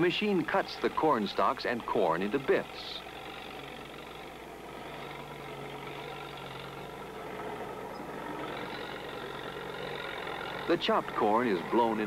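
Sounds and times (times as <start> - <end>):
tractor engine and harvester running: 0.0 - 12.0.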